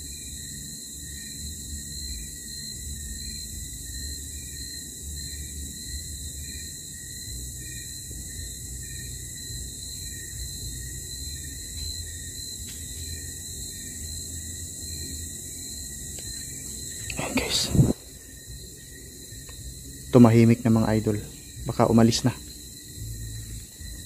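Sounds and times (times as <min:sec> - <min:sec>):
crickets shrilling: 0:00.0 - 0:24.0
low rumble: 0:17.0 - 0:18.7.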